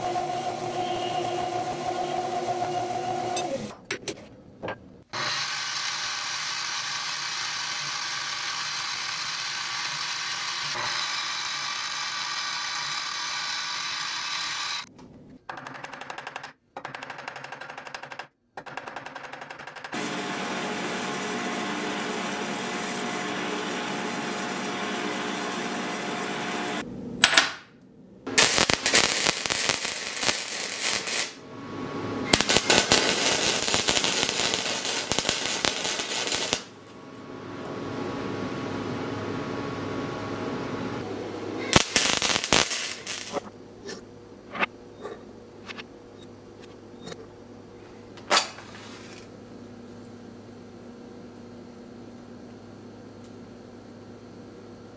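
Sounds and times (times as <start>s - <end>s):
sanding drum humming: 0.0s - 3.7s, 20.0s - 26.8s
drill press boring steel: 5.2s - 14.9s
arc welding crackle: 5.4s - 10.8s, 20.0s - 26.8s, 28.3s - 31.4s, 32.3s - 36.9s, 41.7s - 43.5s.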